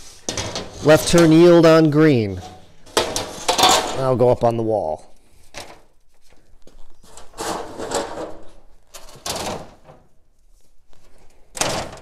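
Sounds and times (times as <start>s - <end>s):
metal signs scraping and clattering: 0.0s - 4.4s, 7.0s - 10.1s.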